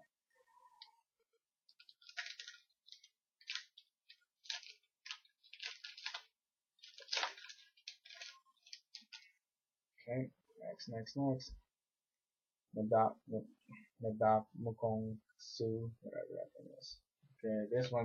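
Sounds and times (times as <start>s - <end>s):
trading cards rustling: 1.7s - 9.3s.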